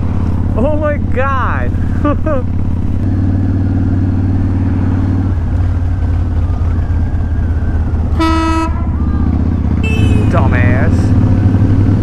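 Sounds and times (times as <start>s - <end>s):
motorcycle engine running: 0.0s - 12.0s
vehicle horn toot: 8.2s - 8.9s, 9.8s - 10.7s.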